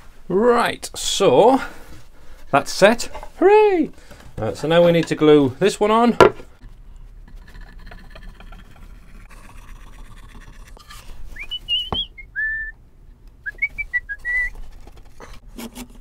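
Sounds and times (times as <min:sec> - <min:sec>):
person whistling: 0:11.4 - 0:12.8, 0:13.4 - 0:14.6.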